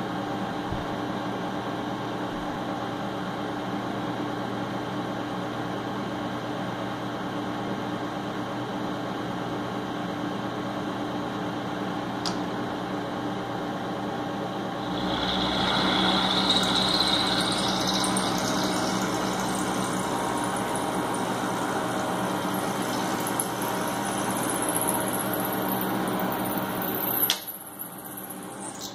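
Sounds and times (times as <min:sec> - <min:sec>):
high whine rising in pitch: 0:14.7 - 0:28.9
milling machine cutting metal: 0:14.8 - 0:27.4.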